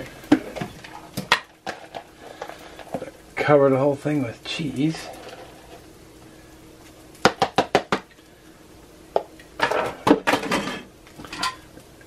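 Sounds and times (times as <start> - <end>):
kitchenware clatter: 9.6 - 11.7.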